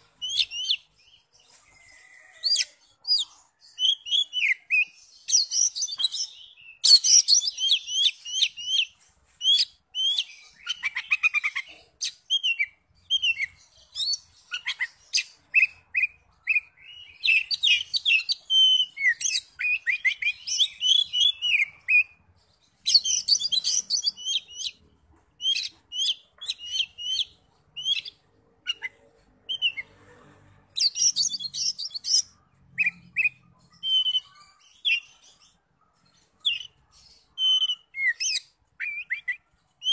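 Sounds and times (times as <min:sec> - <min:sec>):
bird singing whistled phrases: 0:15.6 - 0:22.2, 0:37.4 - 0:39.9.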